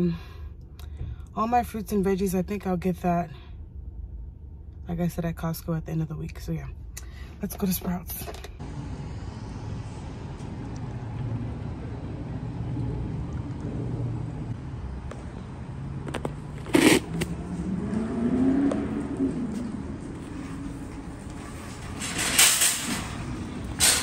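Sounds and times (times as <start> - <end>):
traffic rumble: 0.0 - 24.0
hum rising and falling in pitch: 8.6 - 21.4.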